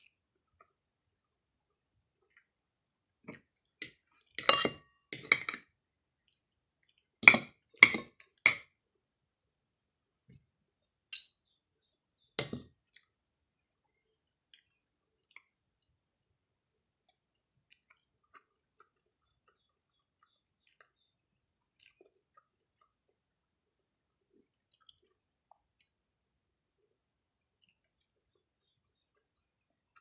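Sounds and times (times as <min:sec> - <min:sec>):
cutlery clinking on a plate: 0:04.4 - 0:05.6.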